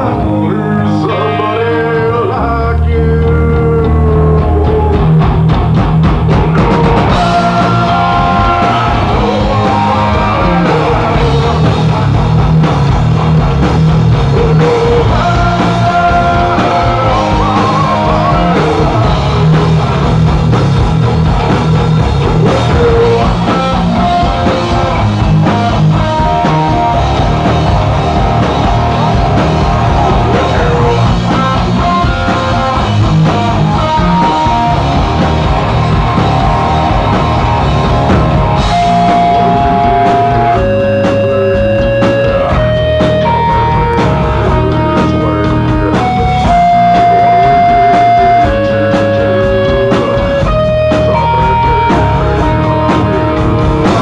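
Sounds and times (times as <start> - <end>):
person singing: 0.0 - 5.2, 6.3 - 11.9, 14.2 - 19.6, 22.3 - 25.0, 30.0 - 32.7, 38.7 - 54.0
distorted electric guitars: 0.0 - 54.0
drum kit: 0.0 - 54.0.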